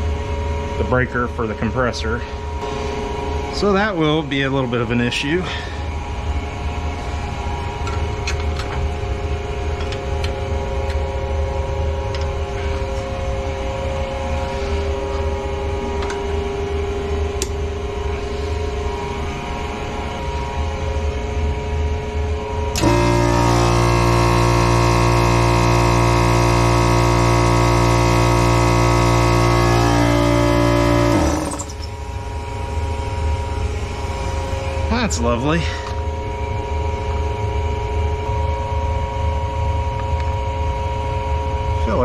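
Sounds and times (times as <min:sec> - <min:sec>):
steady low hum: 0:00.0 - 0:42.0
electric air compressor running: 0:22.7 - 0:34.6.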